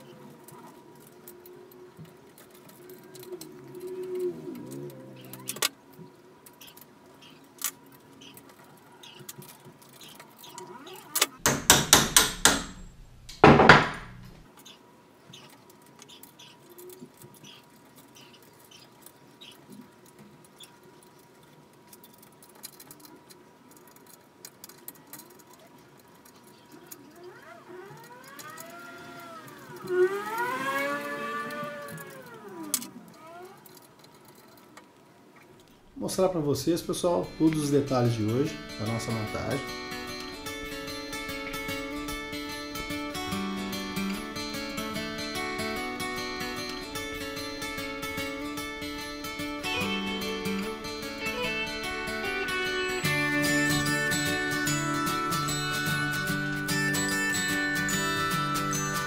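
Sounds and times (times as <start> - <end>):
tool clicks and taps: 11.3 - 14.3
loud knocks: 11.4 - 14.3
belt pulley whirring: 26.9 - 34.4.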